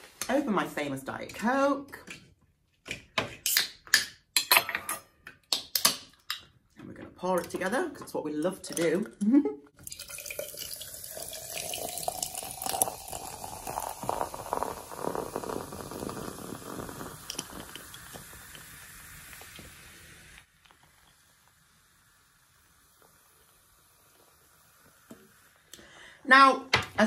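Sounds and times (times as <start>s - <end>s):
soda pouring over ice: 9.8s - 25.7s
foam fizzing and crackling: 9.9s - 25.8s.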